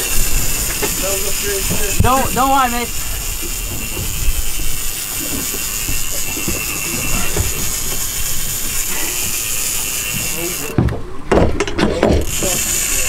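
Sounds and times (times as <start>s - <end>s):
fishing reel line whining: 0.0s - 10.8s, 12.2s - 13.0s
wind and boat rumble: 0.0s - 13.0s.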